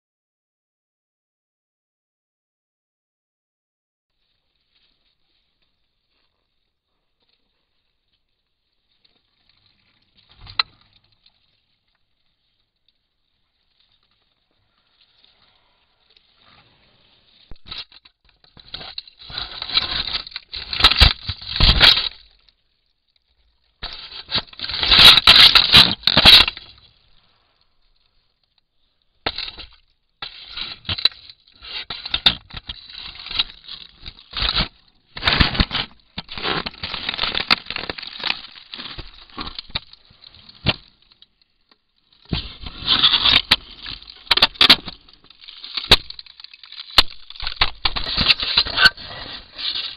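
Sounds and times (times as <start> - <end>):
camera scraped and knocked: 18.6 - 22.2, 23.8 - 26.6, 29.3 - 40.0, 47.0 - 49.9
sharp cracks: 23.8 - 27.0, 42.2 - 49.0.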